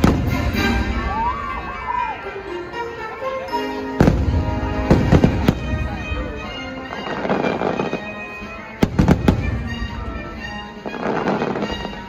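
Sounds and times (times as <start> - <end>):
fireworks bursting with bangs: 0.0 - 1.2, 4.0 - 12.0
orchestral music: 0.0 - 12.0.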